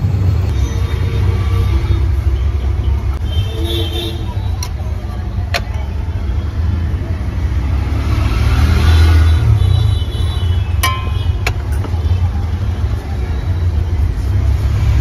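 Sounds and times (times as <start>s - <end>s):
low rumble of street traffic: 0.0s - 15.0s
faint voices: 9.4s - 15.0s.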